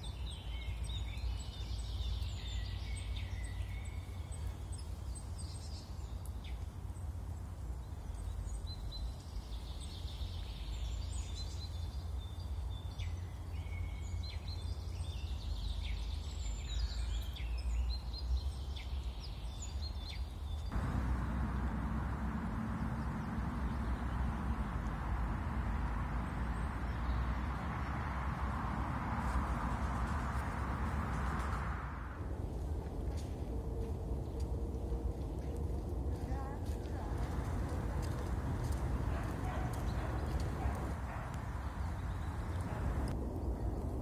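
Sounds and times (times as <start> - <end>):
small birds chirping: 0.0 - 44.0
steady hiss with low hum: 19.1 - 44.0
low background rumble: 20.6 - 44.0.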